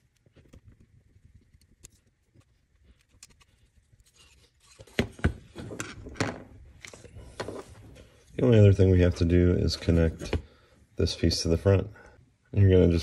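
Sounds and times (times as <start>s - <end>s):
screwdriver scraping and ticking: 1.4s - 4.9s.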